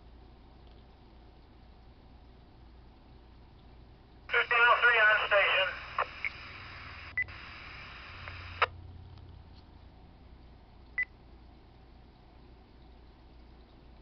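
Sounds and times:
scanner static hiss: 0.0s - 8.8s
squelch click: 8.2s - 8.7s.

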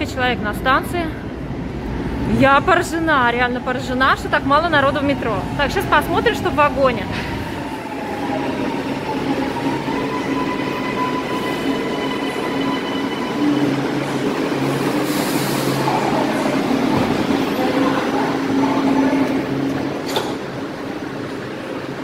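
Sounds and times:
train hum with high whine: 0.0s - 22.0s
train doors hissing open: 14.8s - 17.2s.

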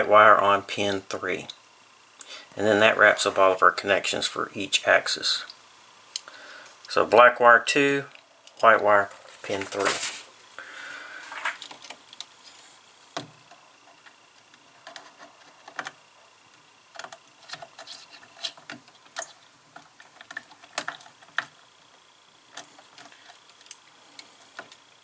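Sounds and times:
wires clicking and tapping: 13.1s - 21.6s.

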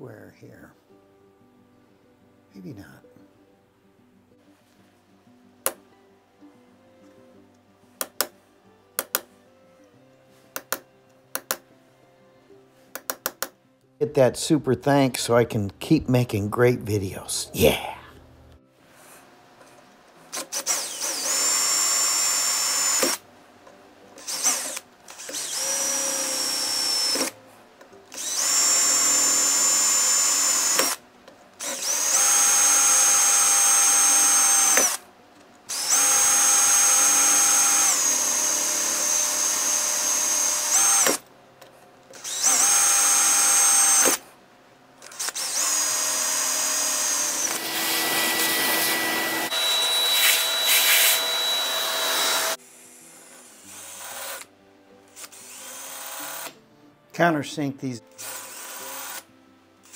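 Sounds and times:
electric drill boring into metal: 20.3s - 23.2s, 24.2s - 27.4s, 28.1s - 31.0s, 31.6s - 35.0s, 35.7s - 41.2s, 42.2s - 44.2s, 45.0s - 54.5s, 55.1s - 56.6s, 58.2s - 59.3s.

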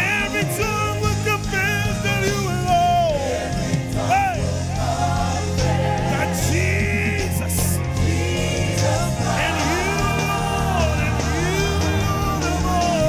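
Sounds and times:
band with bass line: 0.0s - 13.0s
men and women singing: 3.0s - 13.0s.

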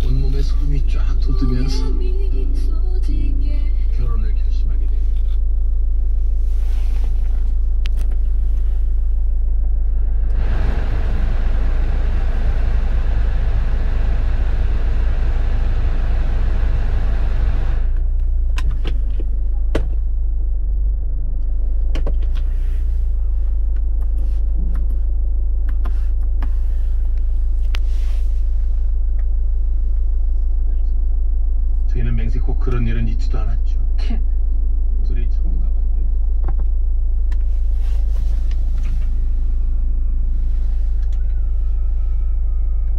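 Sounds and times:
car engine idling: 0.0s - 42.9s
ventilation blower rushing air: 5.8s - 19.7s.

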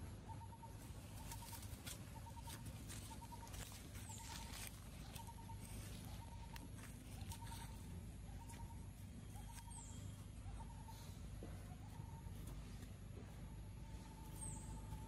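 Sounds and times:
low steady rumble: 0.0s - 15.0s
rustles and scuffs on leaves: 1.1s - 8.7s.

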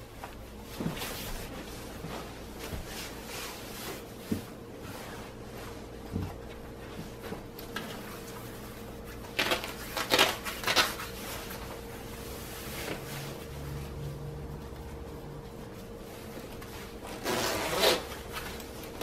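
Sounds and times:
faint steady hum: 0.0s - 19.0s
nylon jacket rustling: 15.8s - 18.8s.

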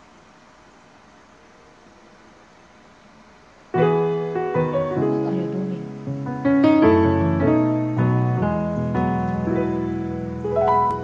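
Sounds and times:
faint hiss: 0.0s - 11.0s
background music with held chords: 3.8s - 11.0s.

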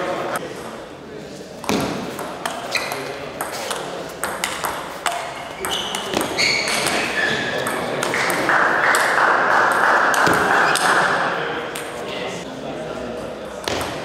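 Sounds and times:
shoes squeaking on floor: 2.6s - 3.9s, 5.2s - 8.4s.

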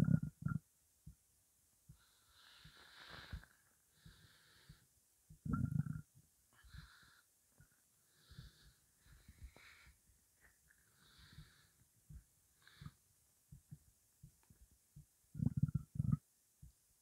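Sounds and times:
stomach gurgling: 0.0s - 0.6s, 5.4s - 6.1s, 15.3s - 16.2s.

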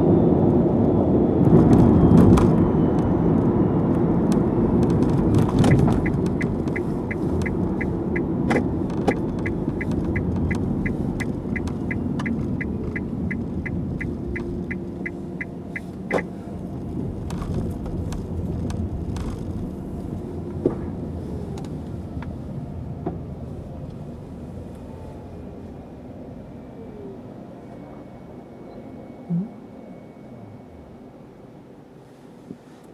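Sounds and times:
tyre and road rumble: 4.0s - 22.4s
turn signal ticking beeps: 5.5s - 16.3s.

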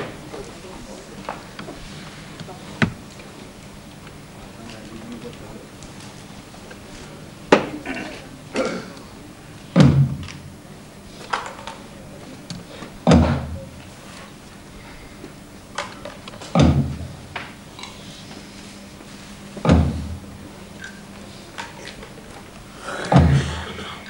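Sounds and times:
heavy booming thuds: 9.7s - 10.3s, 13.0s - 13.7s, 16.5s - 17.2s, 19.6s - 20.3s, 23.1s - 23.8s.

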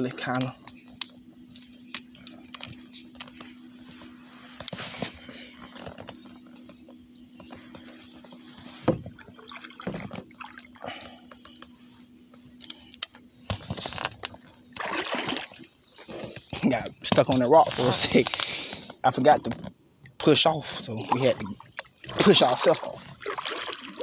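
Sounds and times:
faint low hum: 0.0s - 24.0s
water lapping against kayak hull: 3.9s - 11.7s, 13.8s - 16.5s, 20.0s - 24.0s.

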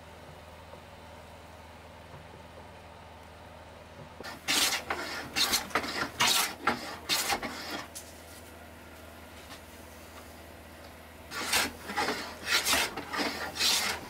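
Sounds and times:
hand plane scraping wood: 4.2s - 7.9s, 11.3s - 14.0s.

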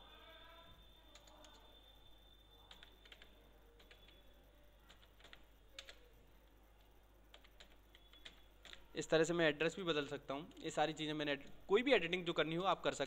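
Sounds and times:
keyboard typing: 1.0s - 1.8s, 2.6s - 9.1s.

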